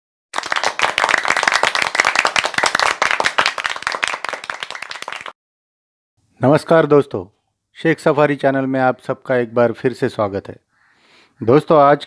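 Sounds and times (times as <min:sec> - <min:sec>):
applause: 0:00.3 - 0:05.4.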